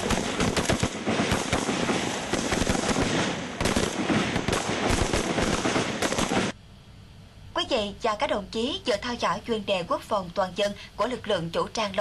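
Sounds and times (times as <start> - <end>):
rapid rifle fire: 0.0 - 6.6.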